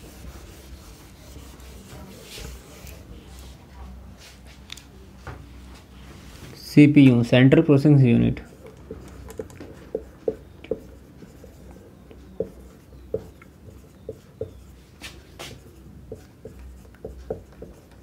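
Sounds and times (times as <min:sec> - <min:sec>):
marker writing on whiteboard: 0:00.0 - 0:03.5, 0:08.4 - 0:18.0.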